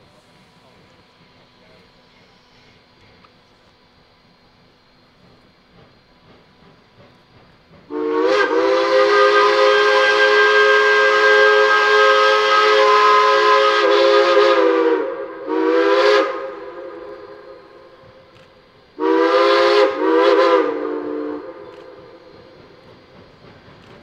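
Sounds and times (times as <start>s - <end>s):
steam hissing: 0.0s - 24.0s
steam whistle blasts: 7.9s - 18.2s, 19.0s - 22.5s.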